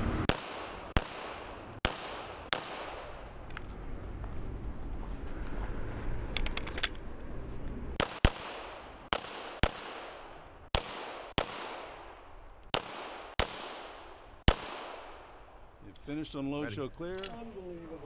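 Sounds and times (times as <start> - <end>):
pistol shots ringing: 0.3 - 3.2, 8.0 - 15.4.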